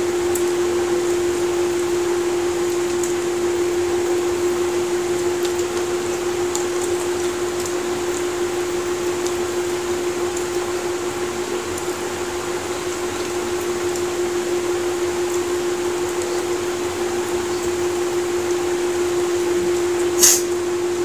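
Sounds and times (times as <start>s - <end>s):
fan running: 0.0s - 21.0s.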